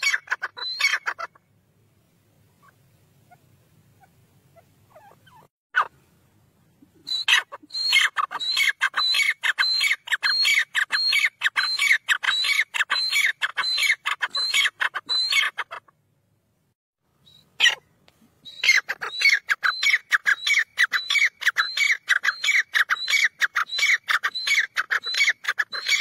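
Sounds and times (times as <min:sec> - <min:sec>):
francolin calling: 0:00.0 - 0:01.4, 0:07.0 - 0:15.8, 0:17.2 - 0:26.0.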